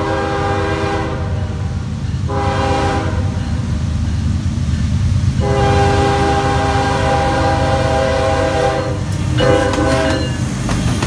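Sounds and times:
locomotive air horn blasts: 0:00.0 - 0:01.6, 0:02.3 - 0:03.4, 0:05.4 - 0:10.4
locomotive rumble passing: 0:00.0 - 0:11.0.

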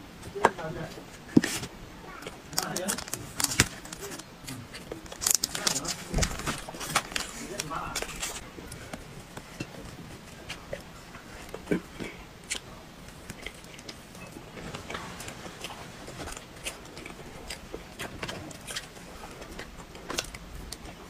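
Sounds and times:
chewing and mouth sounds: 0:02.2 - 0:21.0
fork clicking and scraping: 0:10.4 - 0:21.0.

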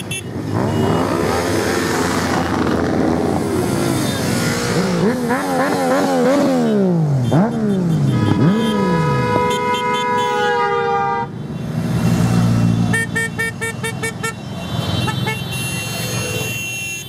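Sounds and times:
motorcycles revving past: 0:00.3 - 0:09.5.

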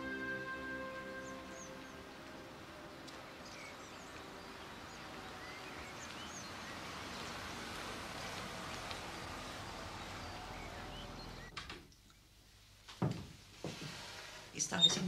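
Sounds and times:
birds chirping: 0:00.0 - 0:11.6
outdoor background noise: 0:00.0 - 0:15.0
car driving up street: 0:01.2 - 0:11.6.

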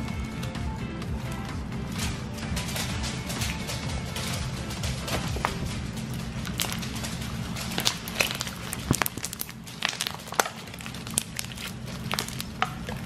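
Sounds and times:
slime popping and crackling: 0:02.6 - 0:13.0.

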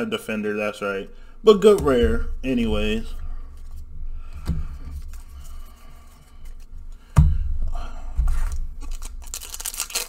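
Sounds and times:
handling trading cards: 0:08.4 - 0:10.0
foil wrapper crinkle: 0:08.8 - 0:10.0.

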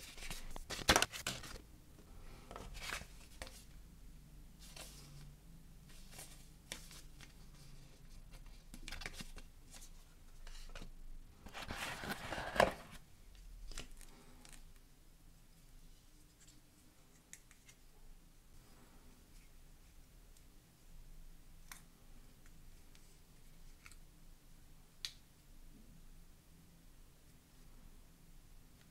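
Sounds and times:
cardboard box rustling: 0:11.5 - 0:13.0.

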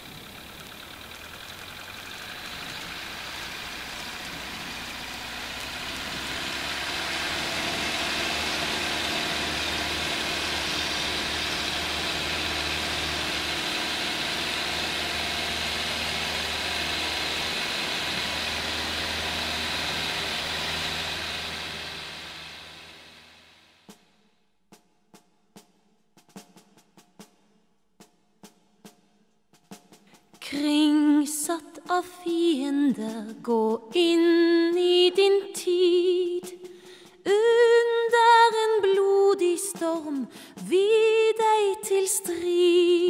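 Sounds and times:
light aircraft engine and propeller: 0:00.0 - 0:23.9.

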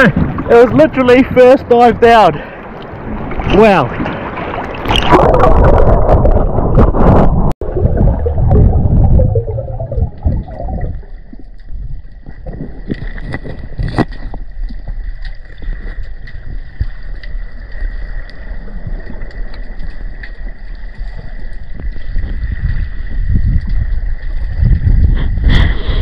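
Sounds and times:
water splashing and sloshing: 0:00.0 - 0:26.0
muffled underwater gurgling: 0:04.9 - 0:12.8.

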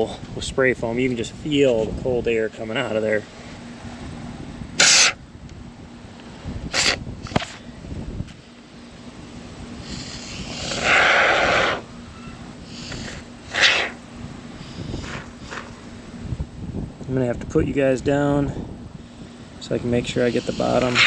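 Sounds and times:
spray foam hissing: 0:09.8 - 0:11.8, 0:12.7 - 0:14.0, 0:20.2 - 0:21.0.

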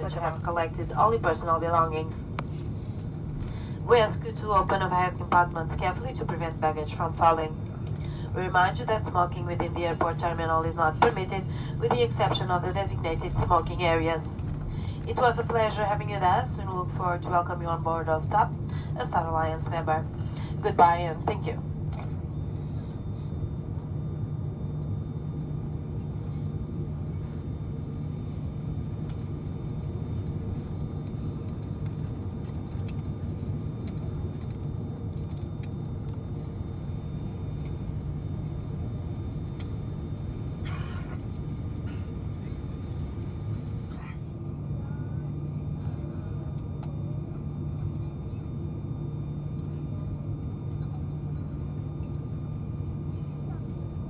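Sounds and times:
airplane cabin hum: 0:00.0 - 0:54.0.

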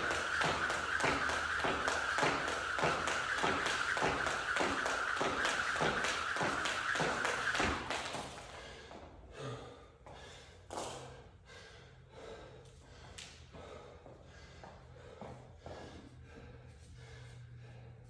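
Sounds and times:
jump rope slapping the floor: 0:00.0 - 0:09.0
heavy gasping breathing: 0:08.6 - 0:18.0.

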